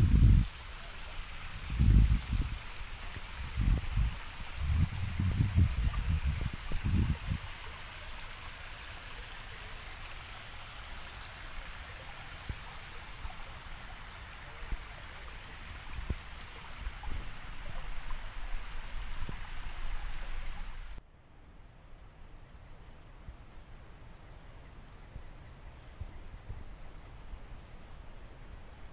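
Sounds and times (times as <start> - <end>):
stream running over rocks: 0.0 - 21.0.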